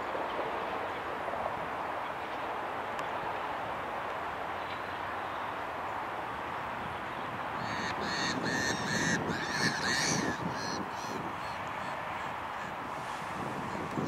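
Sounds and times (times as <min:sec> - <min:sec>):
short harsh bird calls: 0:07.6 - 0:12.7.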